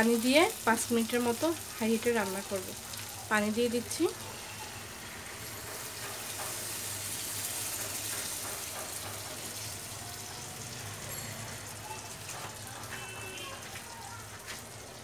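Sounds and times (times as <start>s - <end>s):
water sizzling in hot oil: 0.0s - 15.0s
spatula stirring: 5.3s - 10.4s.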